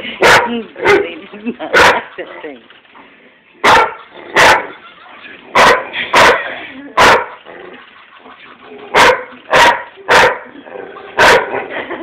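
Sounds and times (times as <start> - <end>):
dog barking: 0.2 - 2.2, 3.6 - 4.8, 5.5 - 7.4, 8.9 - 10.5, 11.2 - 11.7.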